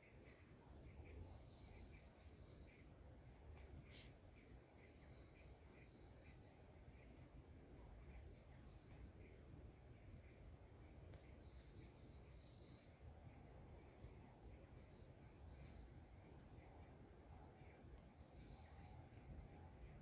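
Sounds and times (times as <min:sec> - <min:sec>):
high-pitched insect call: 0:00.0 - 0:20.0.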